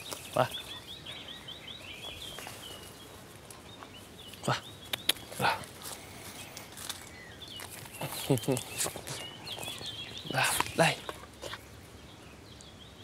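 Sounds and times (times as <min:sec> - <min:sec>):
sharp clicks: 0:04.8 - 0:05.4.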